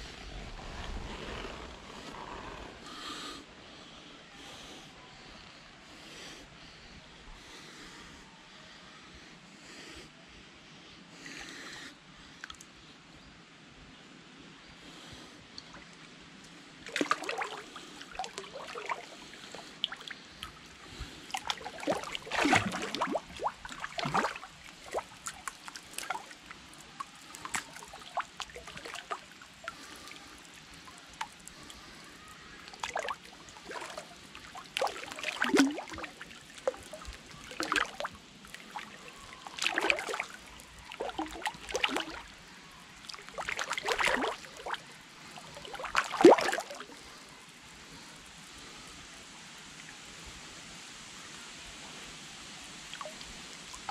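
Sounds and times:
mud sloshing and splashing: 0:16.8 - 0:31.9, 0:32.6 - 0:42.4, 0:43.0 - 0:47.0.

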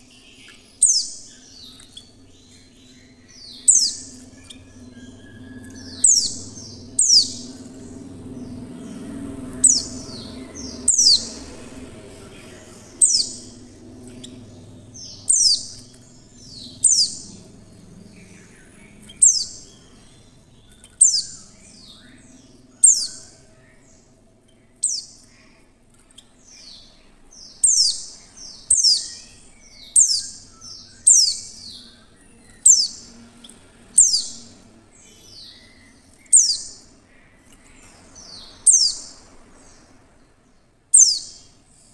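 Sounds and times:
bird chirps sliding downward: 0:00.9 - 0:19.8.

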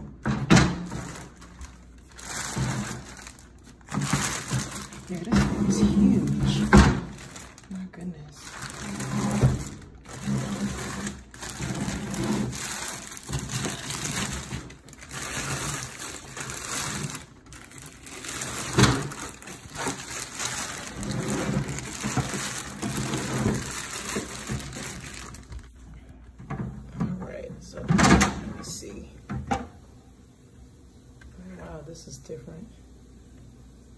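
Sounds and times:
plastic bag crinkling: 0:00.6 - 0:26.0.

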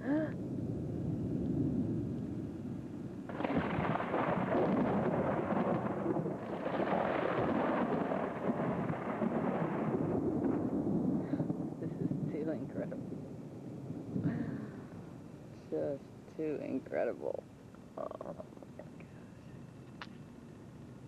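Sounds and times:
thunder rumbling: 0:03.2 - 0:15.0.

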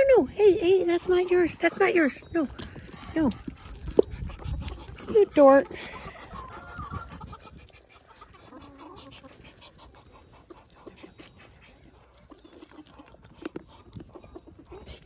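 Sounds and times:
hens clucking softly: 0:03.9 - 0:15.0.

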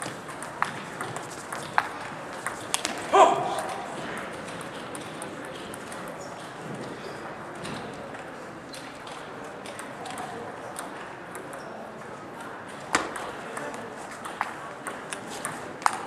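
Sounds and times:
table tennis ball clicks: 0:00.0 - 0:03.0
murmur of voices: 0:00.0 - 0:16.0.

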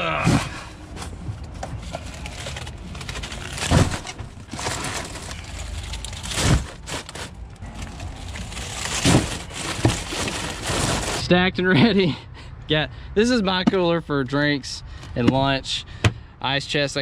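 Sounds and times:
handling noise: 0:00.3 - 0:11.2.

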